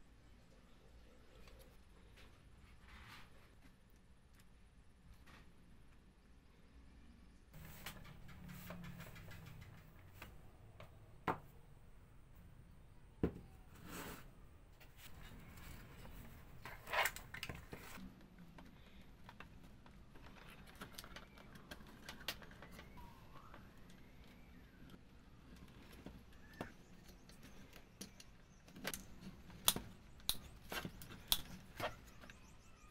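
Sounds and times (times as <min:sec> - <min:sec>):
wooden toy parts clicking: 0:07.8 - 0:10.3.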